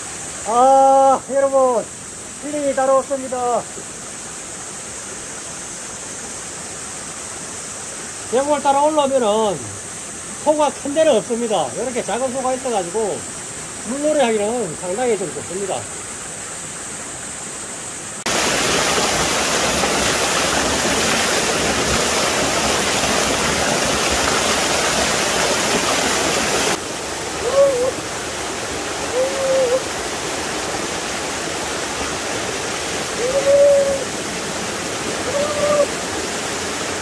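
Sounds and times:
water rushing over rocks: 18.1s - 37.0s.

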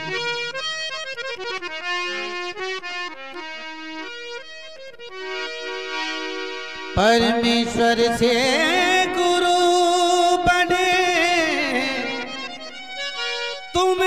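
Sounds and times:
harmonium melody: 0.0s - 14.0s
person singing: 7.0s - 12.8s, 13.7s - 14.0s.

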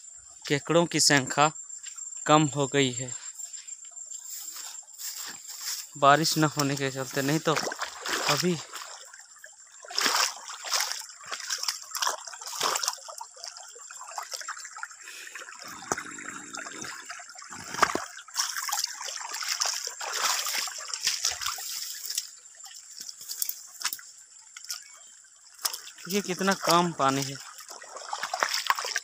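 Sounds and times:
splashes of wading: 4.2s - 29.0s
stream trickling over stones: 4.2s - 29.0s
hand stirring water: 25.6s - 29.0s.

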